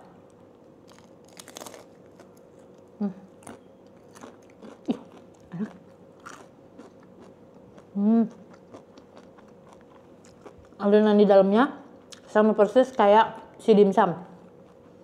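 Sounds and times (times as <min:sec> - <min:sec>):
crunching and chewing food: 0:00.0 - 0:11.1, 0:14.3 - 0:15.0.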